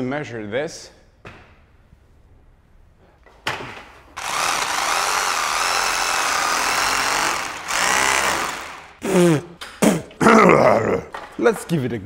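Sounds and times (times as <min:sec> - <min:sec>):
power drill whining: 0:04.2 - 0:09.0.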